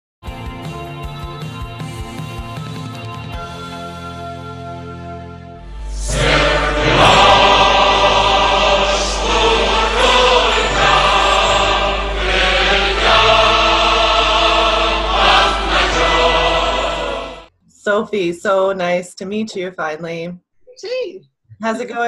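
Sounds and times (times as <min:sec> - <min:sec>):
low drone: 0:05.2 - 0:17.5
voices singing or chanting: 0:05.8 - 0:17.5.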